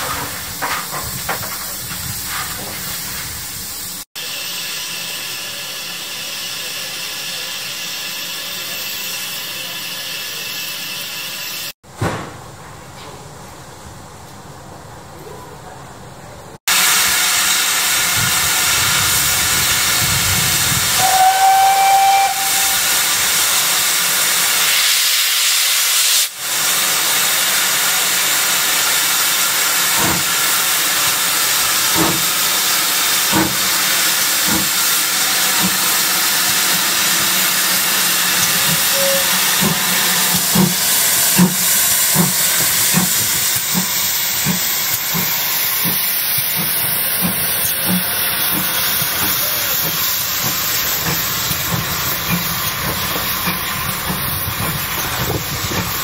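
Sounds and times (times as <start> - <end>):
steam hissing from locomotive: 0.0 - 11.8, 16.6 - 56.0
steam whistle: 20.8 - 23.2, 38.3 - 40.4
locomotive exhaust beats: 31.8 - 56.0.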